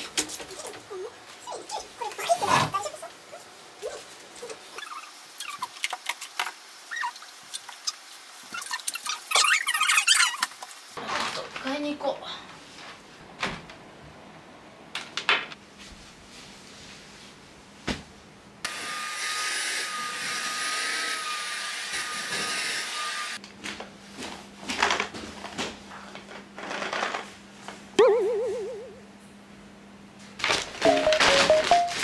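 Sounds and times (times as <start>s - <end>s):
short warbling tone: 28.0s - 29.0s.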